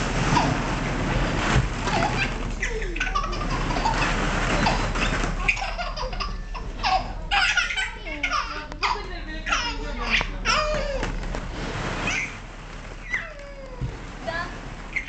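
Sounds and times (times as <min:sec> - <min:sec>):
baby laughing and squealing: 0:01.9 - 0:11.0, 0:12.1 - 0:12.4, 0:13.0 - 0:13.8.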